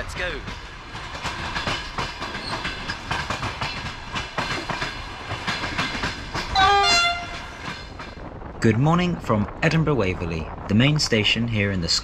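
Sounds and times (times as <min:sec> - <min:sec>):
train wheels clicking over joints: 0:00.0 - 0:08.6
two-note train horn: 0:06.6 - 0:07.4.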